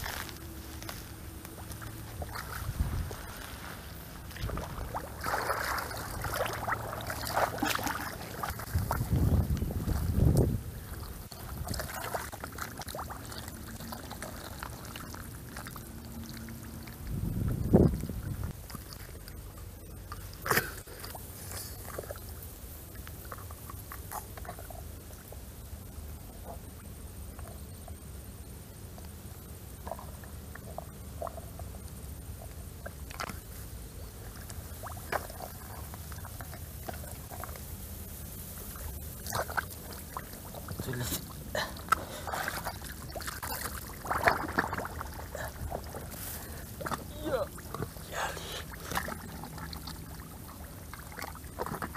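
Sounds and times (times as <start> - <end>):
hands squelching in mud: 0.0 - 19.4, 38.6 - 51.9
mud and water sloshing: 0.0 - 25.3, 29.8 - 51.9
steady low rumble: 0.0 - 51.9
sharp water splashes: 4.3 - 10.3, 10.9 - 17.0, 39.0 - 47.9.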